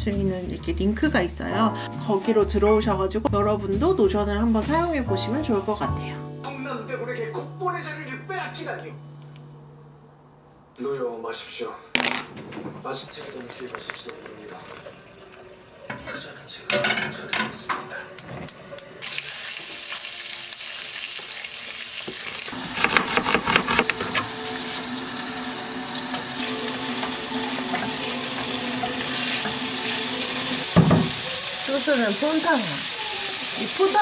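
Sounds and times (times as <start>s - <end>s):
food sizzling in frying pan: 19.0s - 34.0s.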